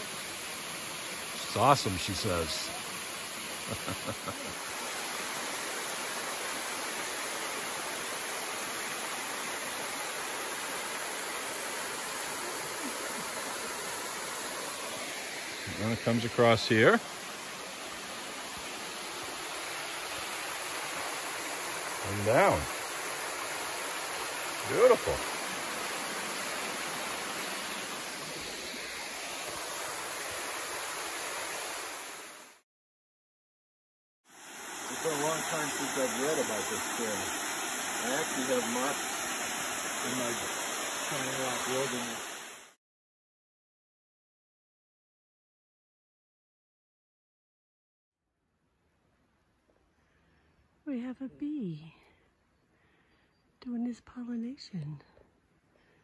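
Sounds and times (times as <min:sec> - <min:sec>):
water rushing over rocks: 0:00.0 - 0:32.6, 0:34.3 - 0:42.8.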